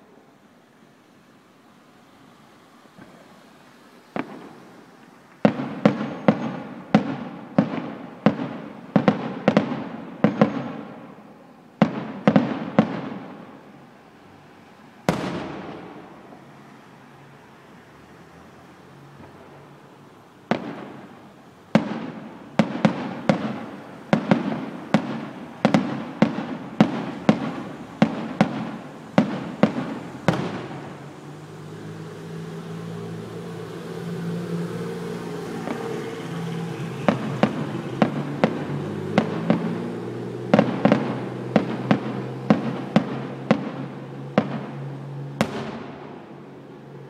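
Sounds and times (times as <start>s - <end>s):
firework shells bursting: 4.2s - 11.0s.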